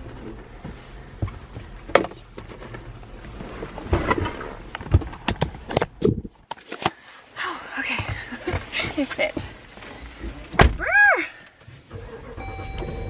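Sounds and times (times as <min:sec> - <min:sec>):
knocks and thuds inside a car: 0:00.0 - 0:03.0, 0:04.8 - 0:06.2, 0:07.9 - 0:11.0.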